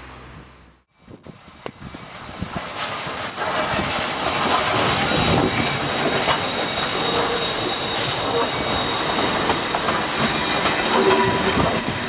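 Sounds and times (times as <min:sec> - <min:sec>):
steam train passing: 0:00.0 - 0:12.0
wheels clattering over rail joints: 0:02.6 - 0:12.0.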